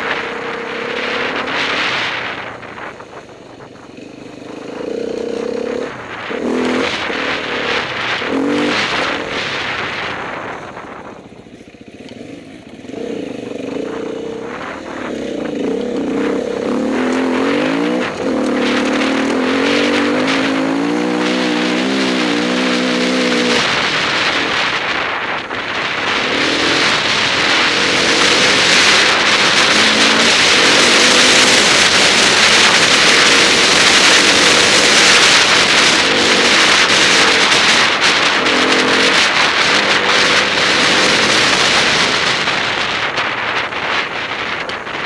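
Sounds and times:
loud rushing noise: 0.0 - 11.6, 12.4 - 45.0
motorcycle engine revving: 0.0 - 45.0.

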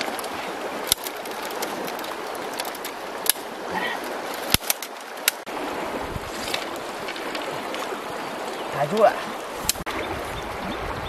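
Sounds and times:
bamboo strips clacking: 0.0 - 5.5
river rushing: 0.0 - 11.0.

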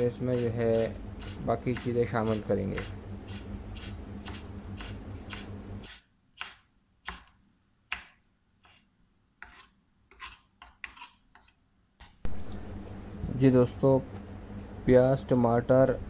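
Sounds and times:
knife chopping on wooden board: 0.2 - 12.4.

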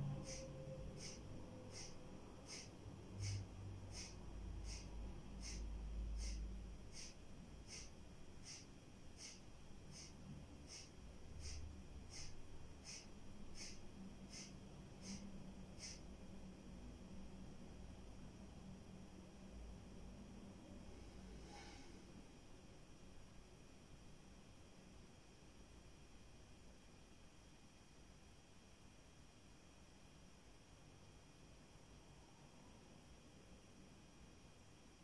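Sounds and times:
forceful nasal exhalations: 1.0 - 5.6, 6.2 - 8.6, 10.7 - 15.2.

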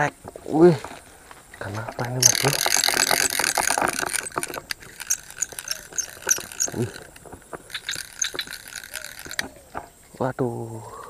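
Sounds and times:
fishing rod and reel clicks: 1.7 - 9.9.

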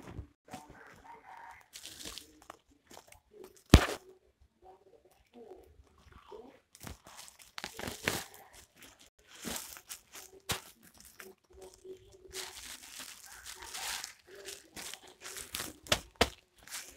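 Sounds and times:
plastic sacks crinkling and rustling: 6.8 - 16.9.

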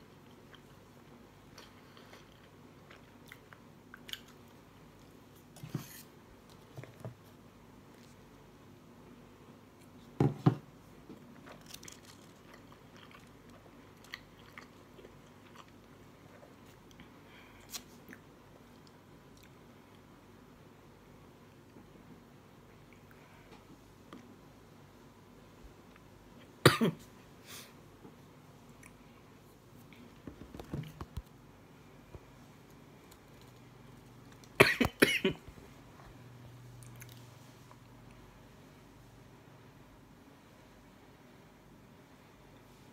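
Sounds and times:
person chewing food: 1.5 - 5.2, 11.3 - 19.6, 36.7 - 37.9
person coughing: 26.6 - 27.0, 34.6 - 35.4.

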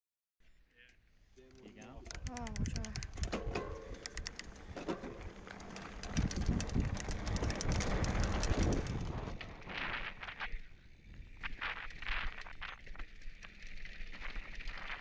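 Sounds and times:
bike rattling: 1.4 - 15.0
wind rumble on microphone: 4.6 - 12.7.

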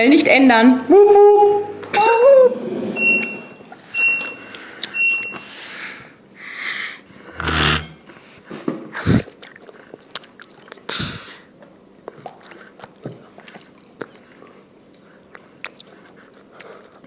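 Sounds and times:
child chewing with mouth clicks: 9.0 - 17.0.

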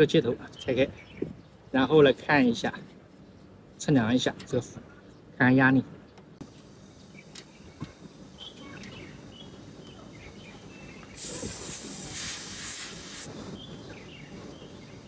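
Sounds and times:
gas hissing from valve: 11.1 - 13.3.

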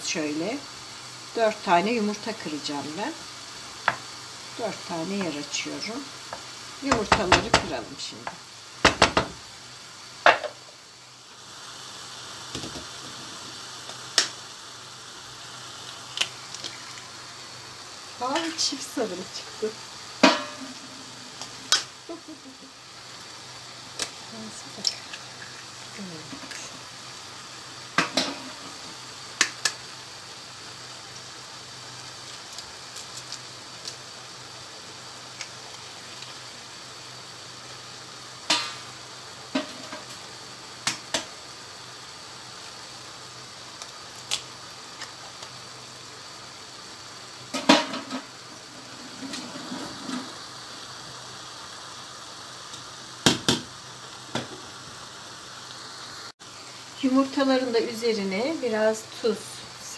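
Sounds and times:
vegetables sizzling in a frying pan: 0.0 - 59.9
utensils knocking on a pan: 6.9 - 7.8, 8.8 - 9.4, 20.2 - 20.8
eggs cracking against a pan: 15.8 - 17.2, 23.9 - 26.7, 29.4 - 29.8.

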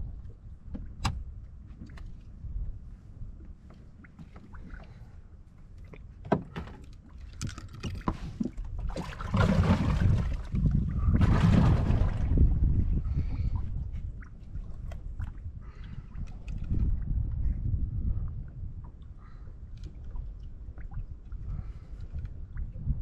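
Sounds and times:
steady low rumble: 0.0 - 6.2, 8.4 - 23.0
knocks and clicks of fishing gear: 5.9 - 8.6.

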